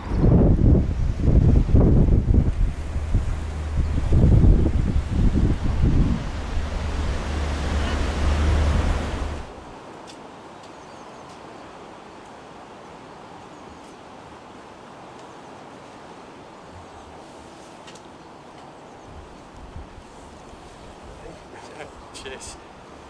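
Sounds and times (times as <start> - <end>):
wind buffeting microphone: 0.0 - 9.8
railway carriages rumbling past: 2.6 - 9.6.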